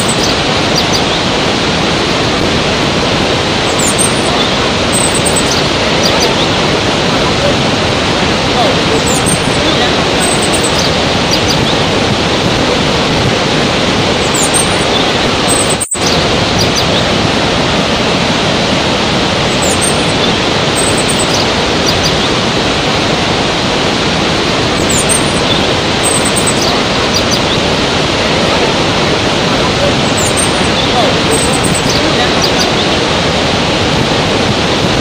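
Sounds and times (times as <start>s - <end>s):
faint bird chirps: 0.0s - 1.3s, 3.5s - 7.4s, 8.5s - 11.9s, 14.1s - 17.1s, 19.5s - 22.4s, 24.7s - 27.8s, 29.6s - 33.0s
waterfall and rapids rushing: 0.0s - 35.0s.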